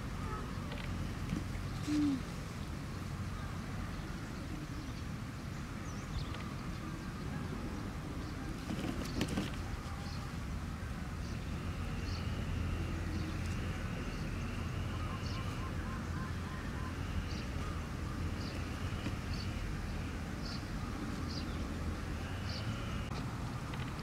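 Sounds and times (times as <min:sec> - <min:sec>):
steady low hum: 0:00.0 - 0:24.0
faint bird chirps: 0:01.7 - 0:02.4
rustle with clicks: 0:23.1 - 0:24.0.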